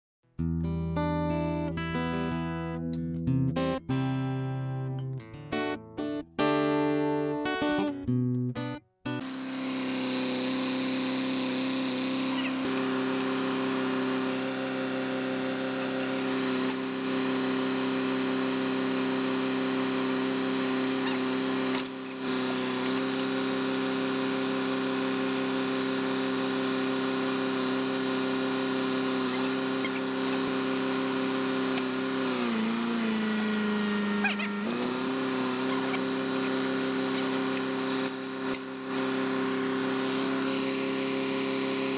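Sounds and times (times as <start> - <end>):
drilling rig engine running: 9.2 - 41.9.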